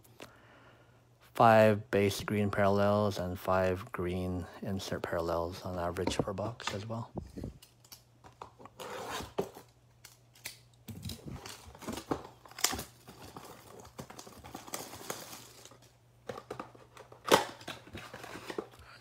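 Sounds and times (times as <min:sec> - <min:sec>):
shrink-wrap crinkling and tearing: 0:10.4 - 0:16.0.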